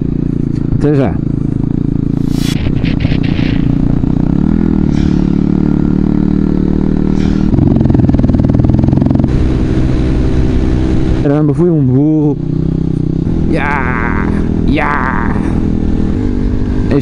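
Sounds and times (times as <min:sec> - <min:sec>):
motorcycle engine running: 0:00.0 - 0:17.0
wind rush: 0:02.1 - 0:05.4.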